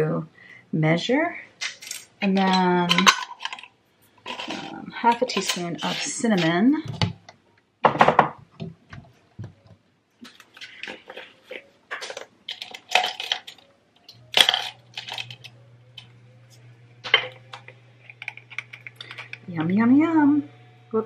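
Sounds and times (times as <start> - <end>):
glass jars clinking: 1.6 - 6.6, 10.8 - 16.1, 17.0 - 19.6
plastic measuring spoons rattling: 1.6 - 6.6, 10.3 - 16.1, 17.0 - 19.5
low steady hum: 10.3 - 21.0.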